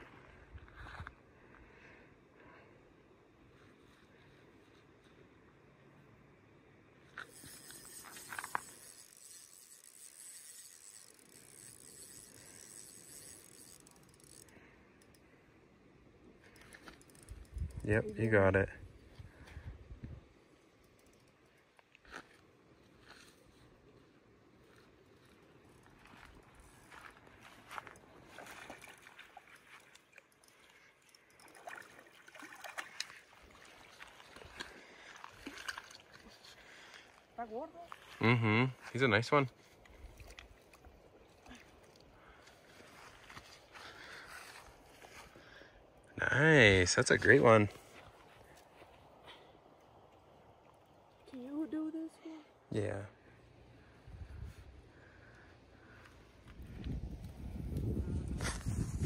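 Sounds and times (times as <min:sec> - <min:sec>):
fishing reel clicks: 0:07.2 - 0:15.3, 0:16.5 - 0:18.3, 0:20.8 - 0:21.5, 0:28.8 - 0:31.8
fishing reel whirring: 0:07.2 - 0:15.3, 0:16.4 - 0:18.4, 0:20.6 - 0:21.7, 0:24.6 - 0:37.2
fish splashing in water: 0:28.2 - 0:36.2.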